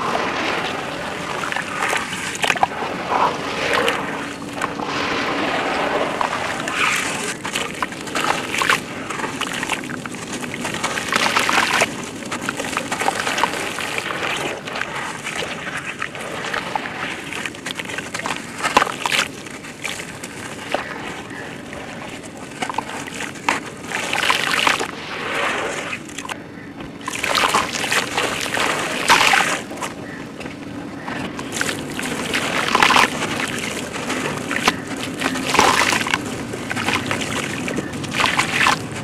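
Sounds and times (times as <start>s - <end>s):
wet sand crumbling: 0.0s - 25.0s
hands sloshing in muddy water: 0.0s - 26.4s, 27.0s - 30.2s, 31.0s - 39.0s.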